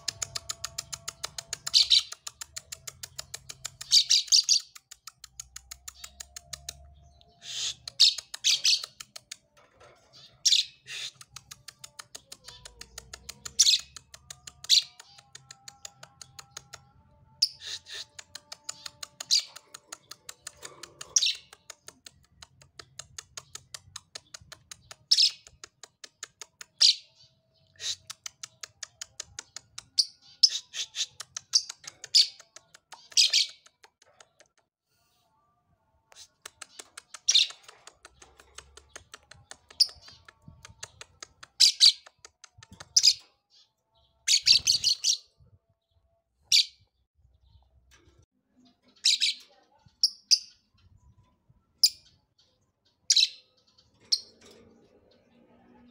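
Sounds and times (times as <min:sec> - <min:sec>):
lovebird chirping: 0:00.0 - 0:09.1, 0:36.1 - 0:45.4.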